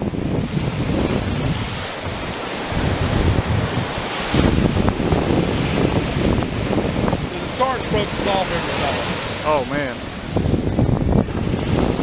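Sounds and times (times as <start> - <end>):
ocean surf breaking: 0.0 - 12.0
wind buffeting microphone: 0.0 - 12.0.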